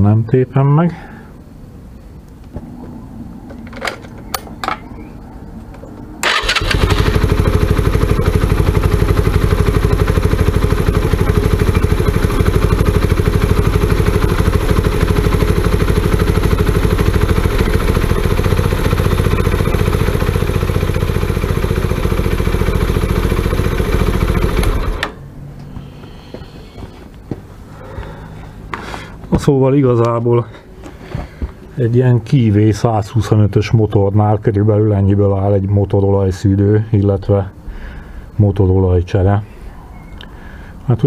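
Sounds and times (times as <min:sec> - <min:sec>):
motorcycle engine idling: 0:06.3 - 0:27.0.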